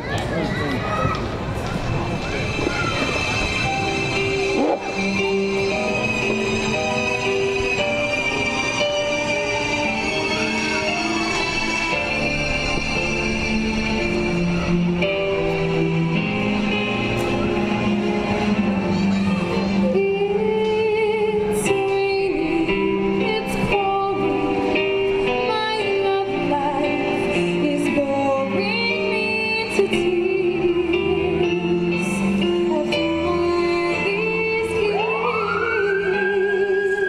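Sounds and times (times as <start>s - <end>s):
instrumental accompaniment: 2.1s - 37.0s
woman singing with vibrato: 20.0s - 24.6s, 25.5s - 37.0s.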